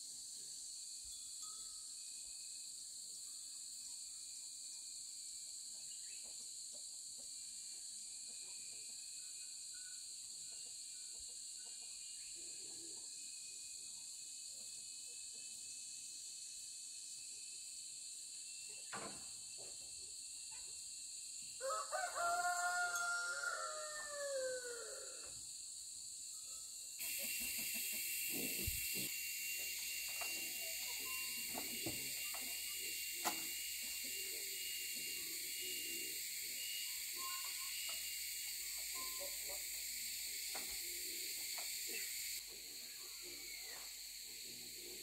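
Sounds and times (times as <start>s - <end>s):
high-pitched whistling hiss: 0.0s - 6.4s, 7.4s - 45.0s
rooster crowing: 21.6s - 25.4s.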